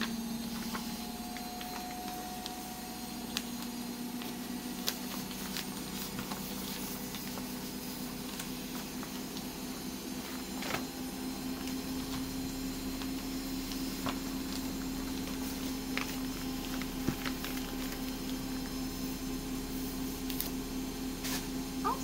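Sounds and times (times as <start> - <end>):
steady hum: 0.0 - 22.0
paper sheet crinkling: 0.4 - 9.5.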